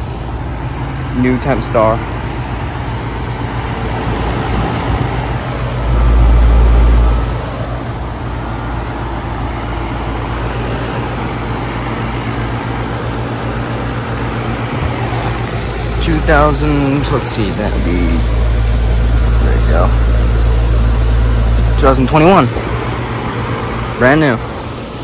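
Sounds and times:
heat pump humming: 0:00.0 - 0:25.0
low rumble: 0:02.0 - 0:10.6, 0:14.4 - 0:24.8.

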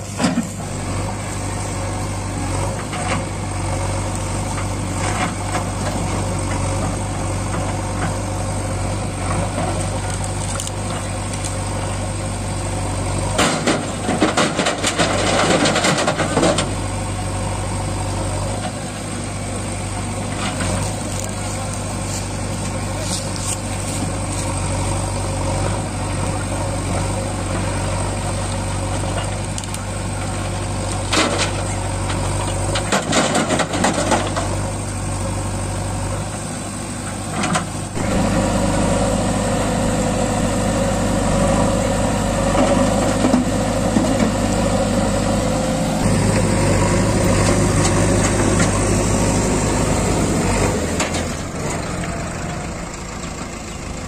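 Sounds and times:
diesel engines running: 0:00.0 - 0:54.0.

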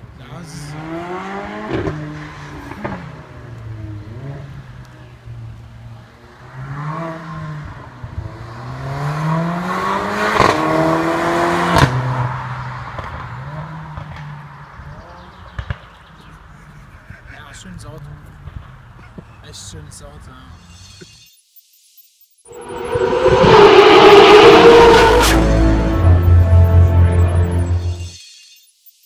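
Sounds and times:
car engine accelerating through gears: 0:00.7 - 0:04.5, 0:06.5 - 0:14.1, 0:22.5 - 0:28.0.

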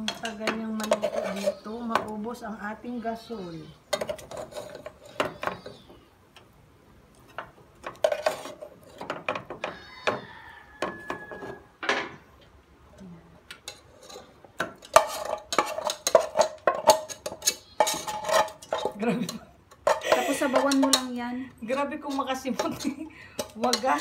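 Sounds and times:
metal spatula scraping pot: 0:00.0 - 0:06.0, 0:07.3 - 0:11.7, 0:13.6 - 0:24.0
metal pot clanking on rim: 0:13.7 - 0:21.2, 0:22.1 - 0:24.0.

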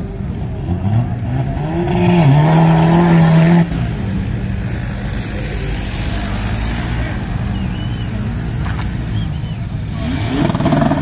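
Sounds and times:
engine revving hard: 0:09.9 - 0:11.0.

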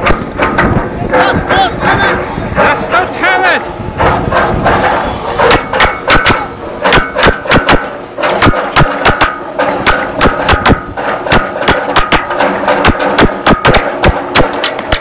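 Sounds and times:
rapid sharp bangs: 0:00.0 - 0:03.1, 0:04.0 - 0:15.0.

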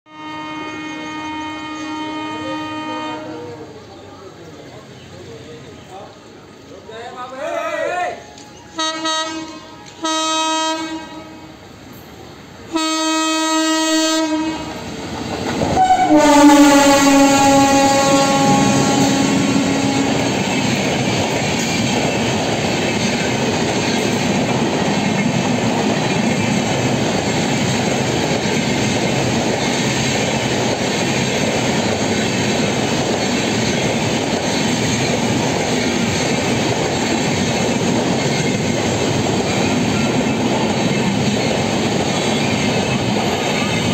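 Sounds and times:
locomotive horn blasts: 0:00.1 - 0:03.7, 0:08.8 - 0:11.6, 0:12.7 - 0:14.7, 0:15.8 - 0:20.4
train coaches rumbling and clattering: 0:00.4 - 0:43.9.

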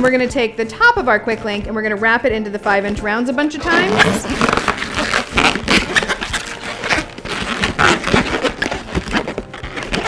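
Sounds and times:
balloons squeaking and rubbing: 0:03.5 - 0:10.0.

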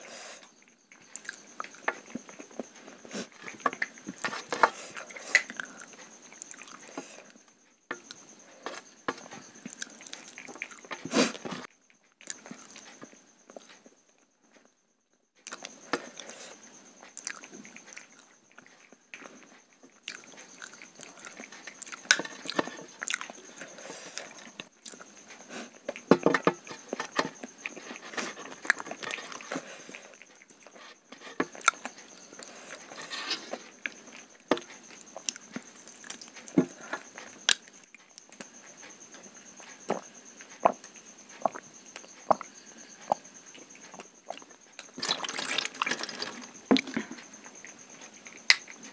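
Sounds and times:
chewing and lip smacks: 0:17.0 - 0:26.1.

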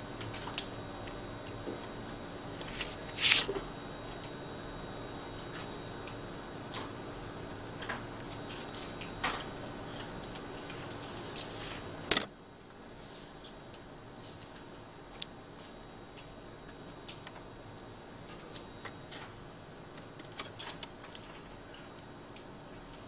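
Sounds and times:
faint steady hum: 0:00.0 - 0:23.0
paper rustling and tapping: 0:02.6 - 0:03.6
paper sliding rustle: 0:02.6 - 0:03.6, 0:11.0 - 0:11.8, 0:13.0 - 0:13.3.

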